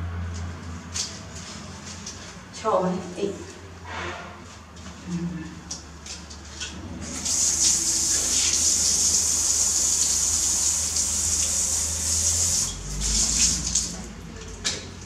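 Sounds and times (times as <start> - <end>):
water spraying from shower head: 7.1 - 14.0.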